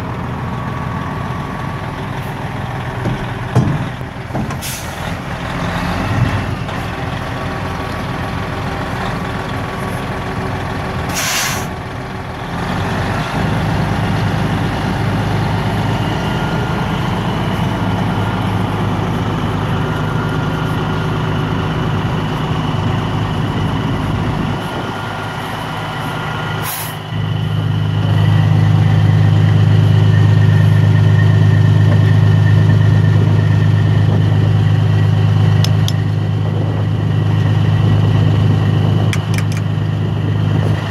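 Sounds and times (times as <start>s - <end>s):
diesel engine idling: 0.0s - 40.9s
air hissing: 11.1s - 11.8s.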